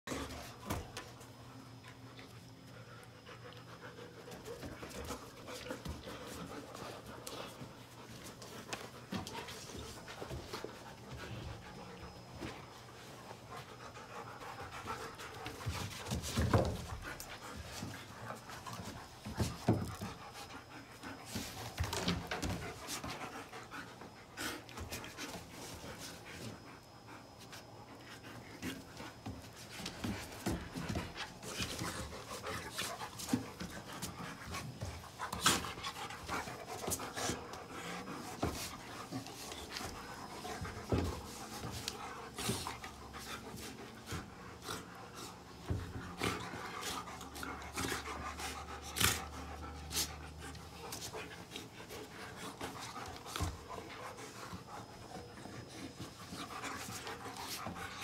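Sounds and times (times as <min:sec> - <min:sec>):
dogs panting: 0:00.0 - 0:58.0
paws scrabbling on wooden boards: 0:27.5 - 0:49.7.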